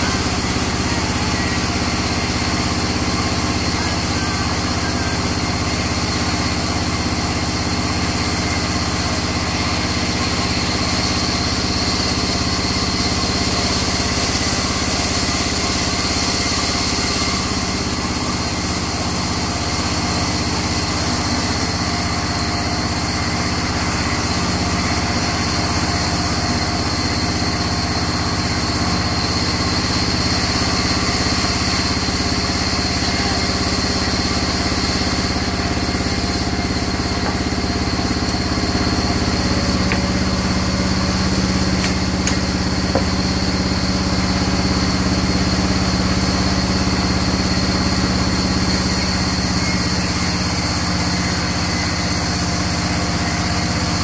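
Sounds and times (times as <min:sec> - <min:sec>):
band saw cutting wood: 0:00.0 - 0:54.0.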